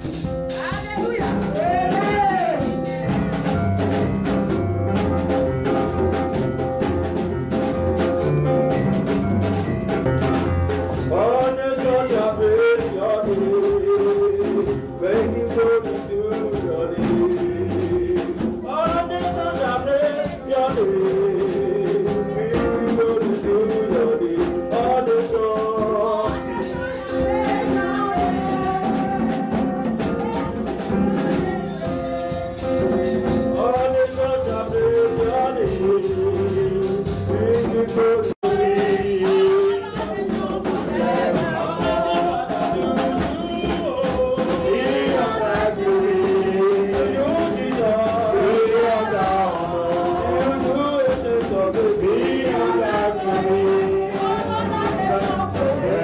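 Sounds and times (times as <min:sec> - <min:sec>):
shaken percussion: 0:00.0 - 0:56.0.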